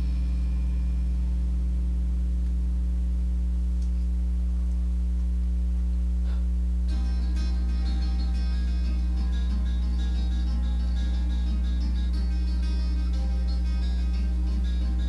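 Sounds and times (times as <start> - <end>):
low electrical hum: 0.0 - 15.0
guitar music: 6.9 - 15.0.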